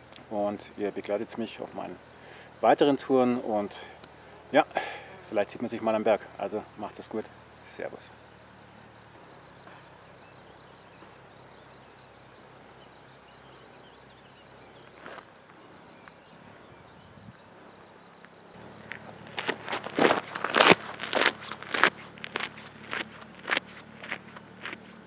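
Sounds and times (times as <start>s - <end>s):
crickets trilling: 0.0s - 25.0s
footsteps on gravel: 18.6s - 25.0s.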